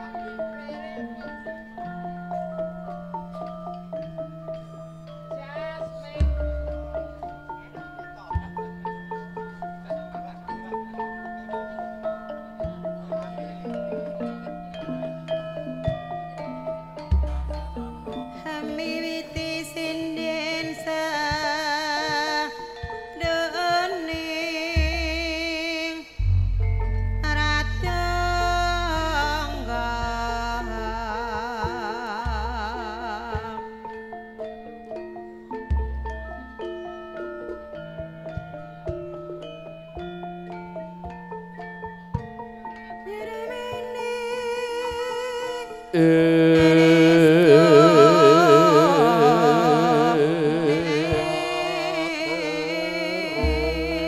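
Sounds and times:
gamelan music with vibrato melody: 0.0 - 54.0
woman singing with vibrato: 18.4 - 26.3, 27.1 - 33.8, 43.1 - 54.0
deep bass tones: 26.2 - 33.2, 46.0 - 54.0.

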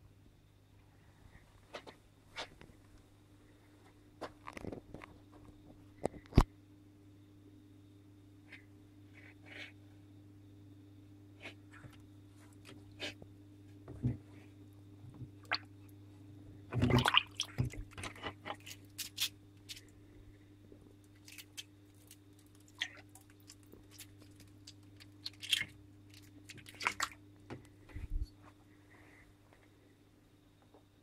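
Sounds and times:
steady low hum: 0.0 - 31.0
wet squishing in water: 15.4 - 15.8, 16.7 - 19.9, 21.1 - 27.2.

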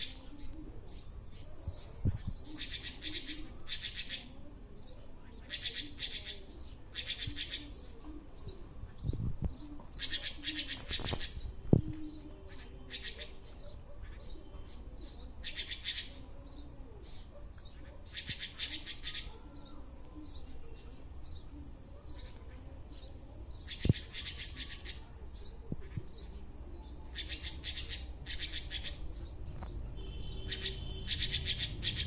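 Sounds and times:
magpie chattering calls: 2.6 - 4.3, 5.4 - 7.8, 10.0 - 11.4, 12.6 - 13.3, 15.4 - 16.2, 18.1 - 19.3, 23.6 - 25.0, 27.1 - 29.0, 30.4 - 32.0.

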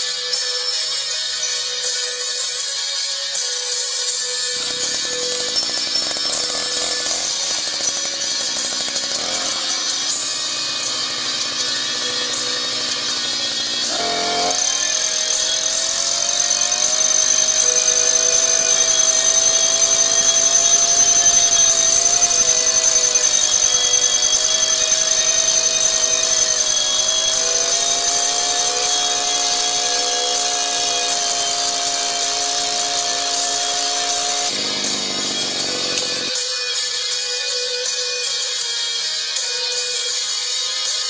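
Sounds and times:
petrol hammer drill drilling rock: 4.5 - 36.4.

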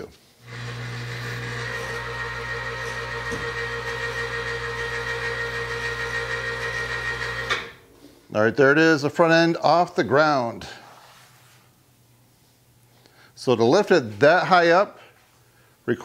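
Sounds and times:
electric hoist humming: 0.4 - 7.9.

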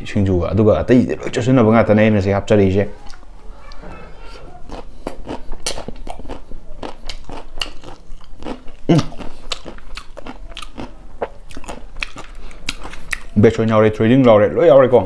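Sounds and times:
crunchy chewing: 3.0 - 13.4.

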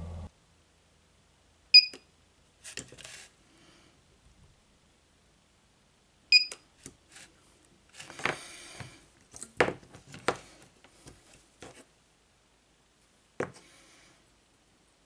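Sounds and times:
brief electronic beep: 1.8 - 2.0.

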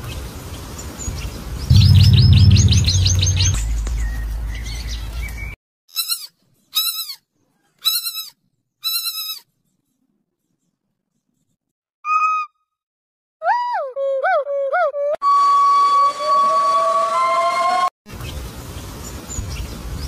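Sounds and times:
low hum: 1.7 - 5.5
piglet squealing: 5.9 - 7.2, 7.8 - 9.4.

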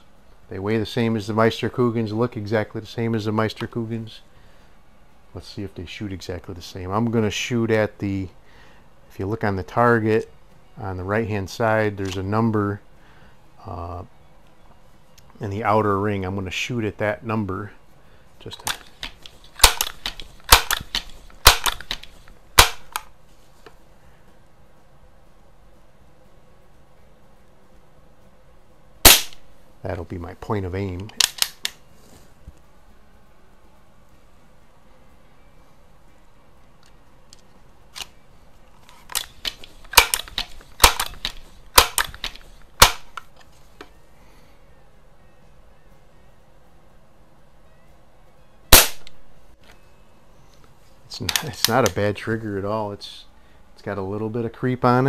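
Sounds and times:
air rifle pump lever clacks: 18.6 - 23.1, 38.8 - 43.3.

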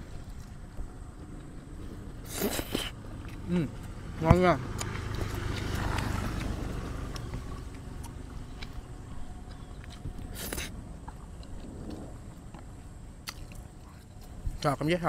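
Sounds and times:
low rumble: 0.0 - 14.6
chewing clicks: 4.7 - 15.0.

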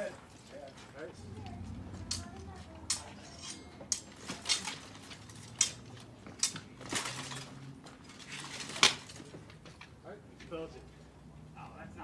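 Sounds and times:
swords and armour clashing: 2.9 - 7.5.

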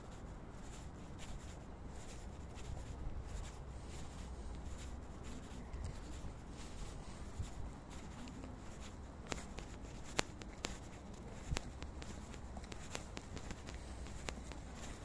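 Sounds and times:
steady low rumble: 0.0 - 15.0
footstep and handling clicks: 7.4 - 15.0.

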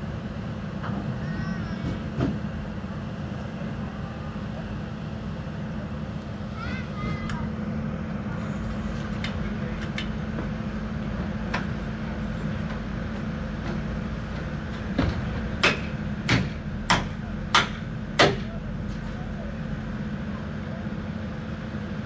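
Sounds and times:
low machinery drone: 0.0 - 22.0
hammer striking steel: 15.6 - 18.5.

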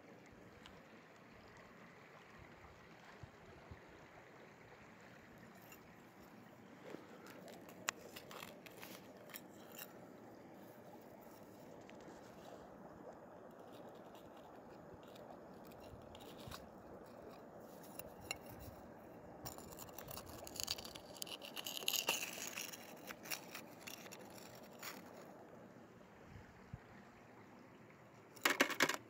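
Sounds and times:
metal spoon scraping rock and gravel: 5.6 - 5.9, 7.2 - 10.2, 13.5 - 25.4.

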